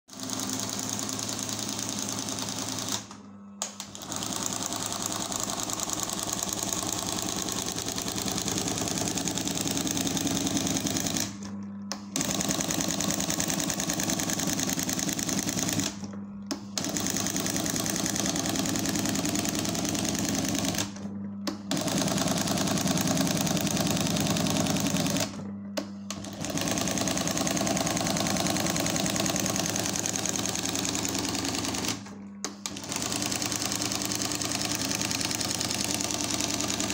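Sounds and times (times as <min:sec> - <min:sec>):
motor hum: 0:18.2 - 0:36.9.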